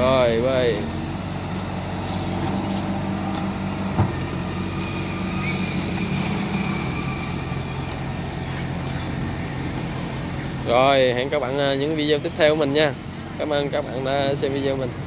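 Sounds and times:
diesel excavator engine running: 0.0s - 15.0s.

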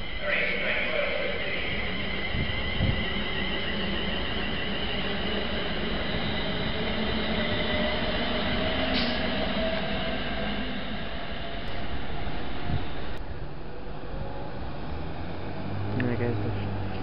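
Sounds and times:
whining traction tones: 0.0s - 13.2s
train wheels rumbling on rail: 0.0s - 17.0s.

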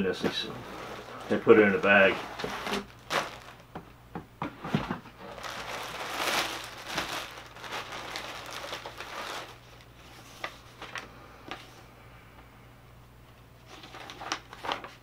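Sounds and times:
paper rustling: 0.0s - 3.6s, 4.6s - 11.7s, 13.7s - 15.0s
plastic bag crinkling: 0.0s - 3.8s, 5.1s - 11.1s.

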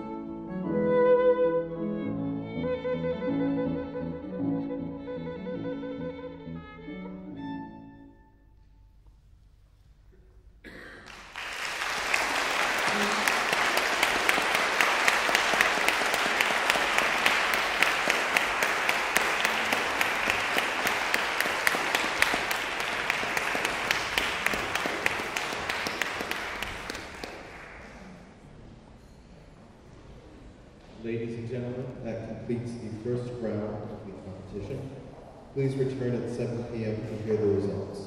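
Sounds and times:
audience applause: 11.0s - 28.1s.

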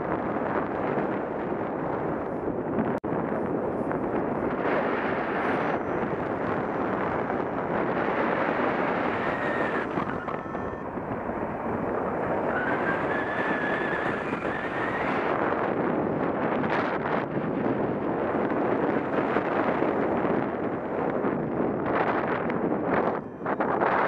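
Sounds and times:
wind buffeting microphone: 0.0s - 24.0s
faint high whistle: 9.1s - 11.0s.

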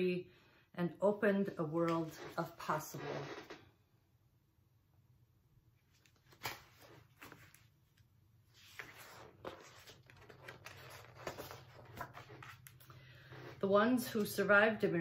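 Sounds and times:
book pages rustling: 5.8s - 14.4s.

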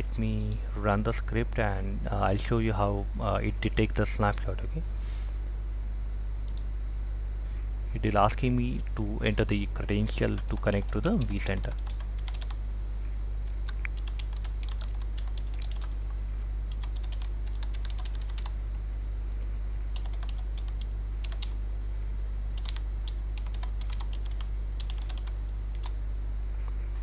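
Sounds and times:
computer keyboard typing: 10.2s - 12.6s, 13.6s - 16.1s, 16.7s - 18.5s, 19.9s - 21.6s, 22.6s - 26.0s.

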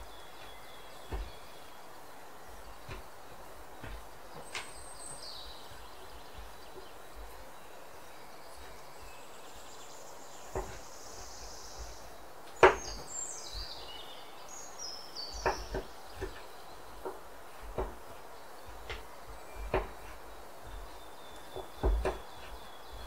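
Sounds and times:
steady hiss: 0.0s - 23.0s.

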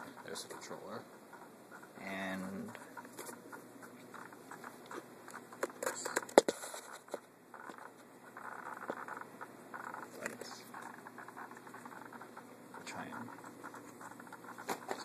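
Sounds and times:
handling rustles and clicks: 2.6s - 9.2s.

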